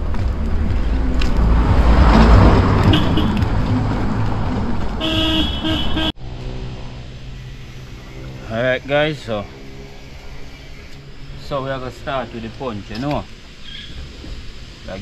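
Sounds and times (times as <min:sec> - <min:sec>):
car passing: 0:00.0 - 0:15.0
car horn toots: 0:02.8 - 0:03.5, 0:05.0 - 0:06.2.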